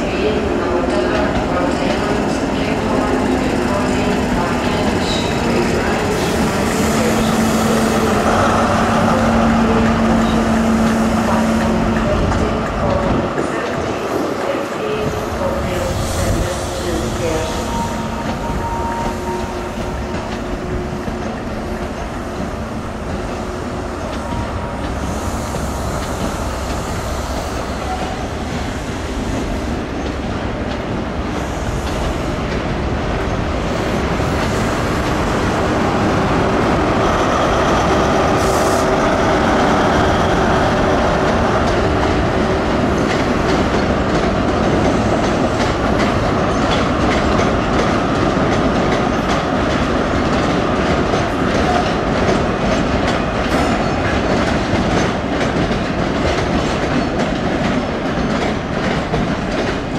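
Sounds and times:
diesel train engines running: 0.0s - 59.9s
train wheels clicking over rail joints: 16.2s - 59.9s.

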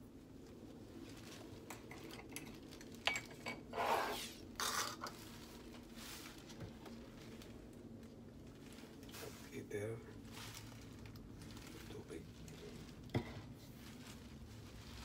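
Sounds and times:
rustling swishes: 5.2s - 15.0s.

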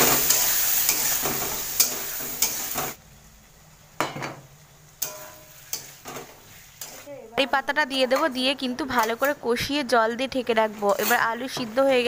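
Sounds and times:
metal spatula scraping a pan: 0.0s - 3.0s, 5.0s - 7.1s, 7.9s - 9.4s, 10.6s - 12.0s
food sizzling in a wok: 0.0s - 12.0s.

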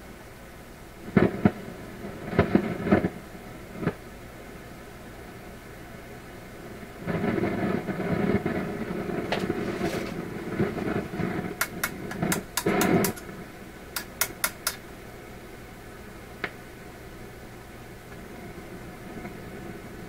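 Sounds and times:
radio speaker static noise: 0.0s - 20.0s
sharp clicks: 11.6s - 13.3s, 14.0s - 14.8s.

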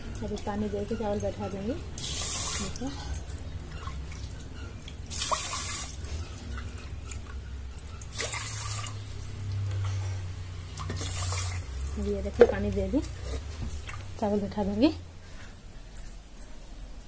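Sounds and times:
water pouring into pot: 8.1s - 9.1s, 10.8s - 11.8s.

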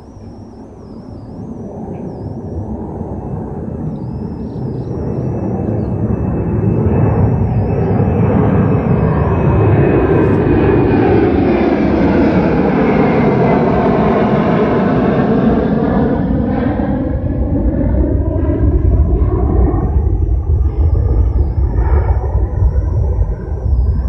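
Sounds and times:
faint high wavering tone: 0.0s - 10.8s, 18.6s - 24.0s
low engine rumble: 17.2s - 24.0s.

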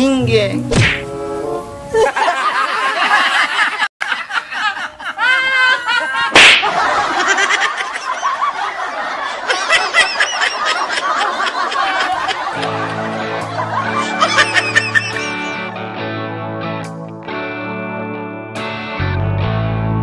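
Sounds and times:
loud sharp smack: 0.7s - 1.1s, 6.3s - 6.8s
people laughing: 1.9s - 15.9s.

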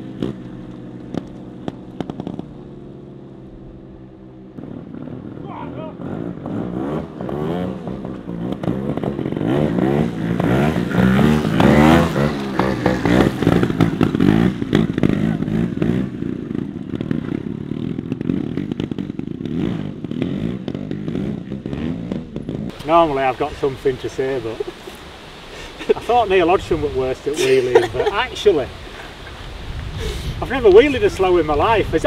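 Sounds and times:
motorcycle engines revving: 0.0s - 32.0s.

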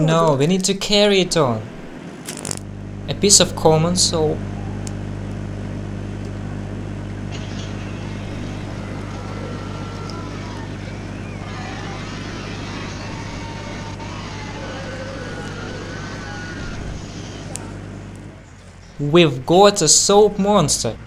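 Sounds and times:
transformer mains hum with hiss: 0.0s - 21.0s
faint wavering whistles: 7.6s - 17.9s.

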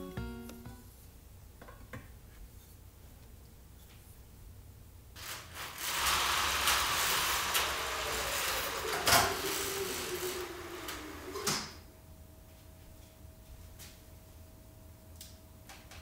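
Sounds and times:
blind knocking: 5.2s - 11.8s
window blind sliding: 5.2s - 11.8s.

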